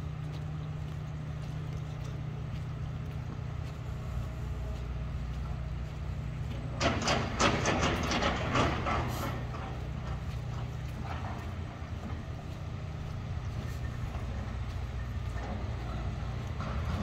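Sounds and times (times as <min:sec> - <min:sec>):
engine idling: 0:00.0 - 0:17.0
sharp taps and clatter: 0:06.8 - 0:11.4.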